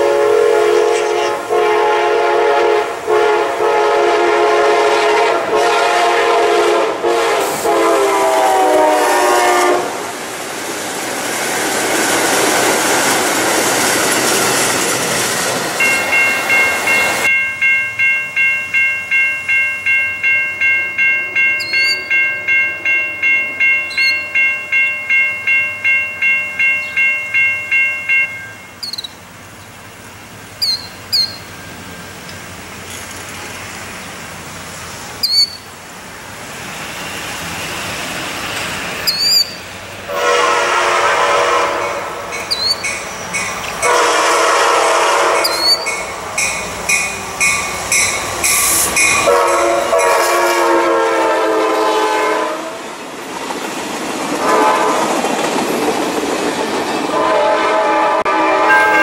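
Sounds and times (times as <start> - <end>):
train horn blasts: 0.0 - 10.0, 40.1 - 42.8, 43.8 - 46.0, 48.6 - 52.8, 54.4 - 55.2, 57.1 - 59.0
passing passenger train: 0.0 - 59.0
railroad crossing bell ringing: 15.6 - 29.3, 30.6 - 32.6, 38.6 - 52.0, 58.3 - 59.0
bird chirps: 21.6 - 22.1, 23.9 - 24.3, 28.8 - 29.2, 30.6 - 31.7, 35.2 - 35.7, 39.0 - 39.6, 42.4 - 43.5, 45.4 - 46.0.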